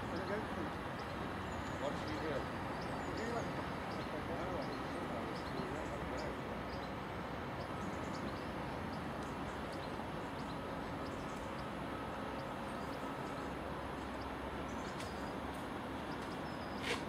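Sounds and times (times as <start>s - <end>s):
diesel locomotive engine rumbling: 0.0s - 17.0s.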